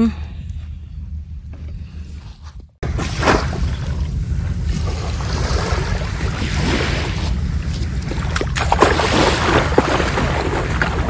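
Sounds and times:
sea waves on beach: 0:02.8 - 0:11.0.

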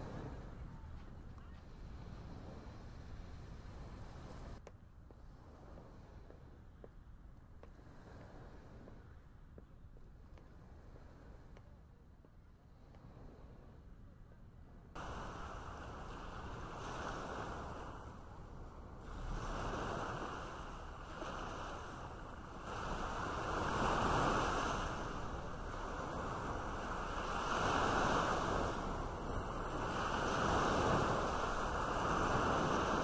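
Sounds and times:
sea waves washing against rocks: 0:19.0 - 0:33.0.

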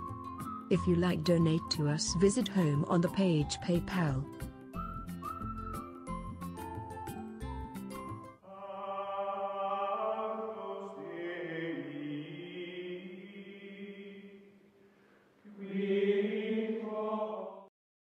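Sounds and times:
choral chant: 0:08.4 - 0:14.6, 0:15.4 - 0:17.7.

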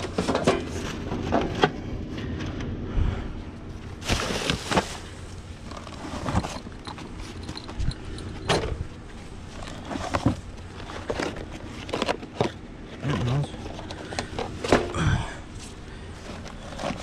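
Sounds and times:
plastic bags rustling: 0:03.9 - 0:08.3.

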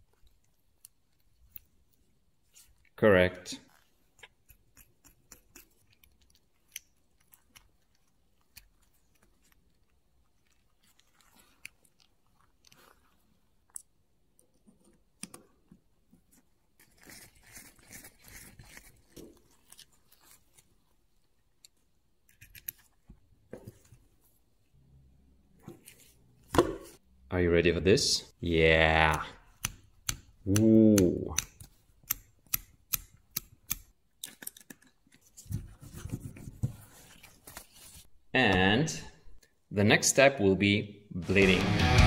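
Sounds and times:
small parts clicking and tapping: 0:29.1 - 0:35.2.

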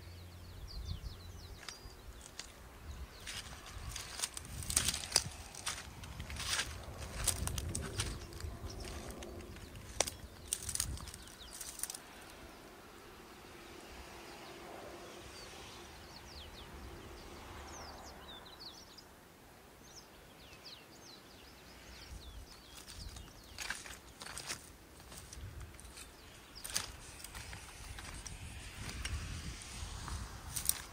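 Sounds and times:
sharp crackling noises: 0:01.6 - 0:12.5, 0:21.8 - 0:30.9.

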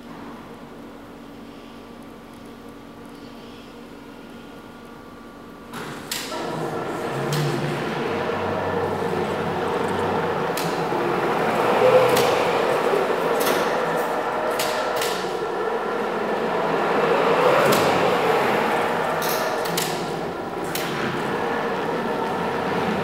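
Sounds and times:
forklift motor hum: 0:06.2 - 0:23.0.

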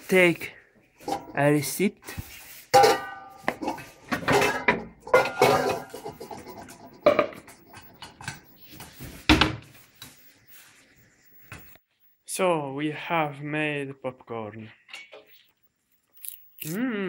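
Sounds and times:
dishes clinking: 0:02.7 - 0:08.4
containers knocking and rattling: 0:02.8 - 0:08.4.

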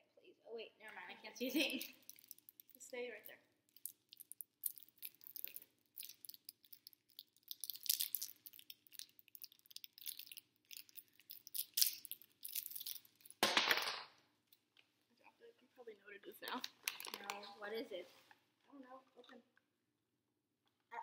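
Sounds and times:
candy wrapper crinkling: 0:01.4 - 0:14.6, 0:16.4 - 0:17.6
wrapper tearing: 0:01.6 - 0:02.8, 0:03.7 - 0:13.5, 0:16.6 - 0:17.4.

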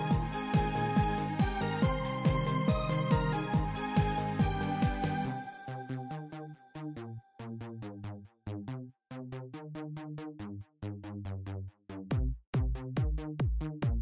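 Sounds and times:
deep kick drum: 0:00.0 - 0:05.3, 0:12.0 - 0:14.0
electronic synth music: 0:00.0 - 0:07.7.

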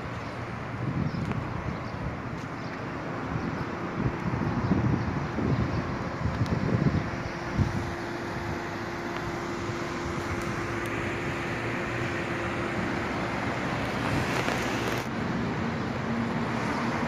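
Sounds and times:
passing cars traffic noise: 0:00.0 - 0:17.0
steady hum: 0:05.4 - 0:15.8.

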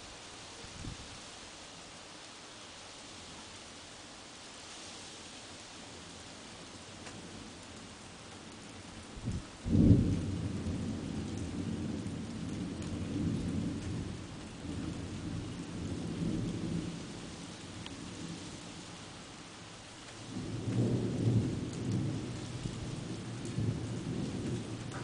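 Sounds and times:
background hiss: 0:00.0 - 0:11.0
thunder clap and rumble: 0:09.2 - 0:17.0, 0:20.3 - 0:25.0.

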